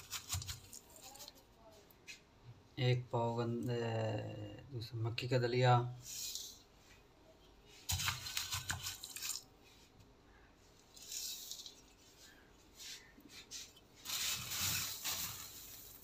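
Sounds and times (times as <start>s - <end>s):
grain sliding hiss: 6.0s - 6.6s, 10.8s - 16.0s
knocking and rustling handling: 7.8s - 9.9s
grain poured into steel bowl: 10.9s - 12.0s, 14.0s - 16.0s.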